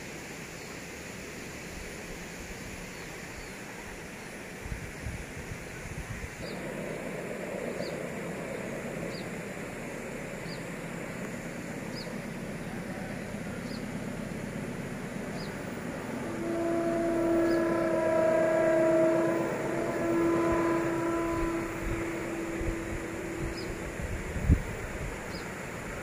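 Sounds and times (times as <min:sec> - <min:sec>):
steady background noise: 0:00.0 - 0:26.0
locomotive horn blast: 0:10.4 - 0:26.0.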